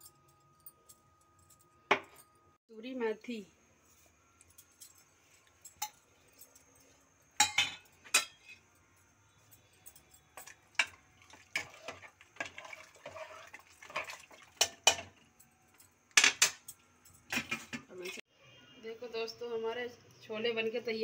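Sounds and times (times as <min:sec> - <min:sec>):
metal ladle clinking against pot: 0:10.3 - 0:15.2
wet scraping in pot: 0:10.8 - 0:14.8.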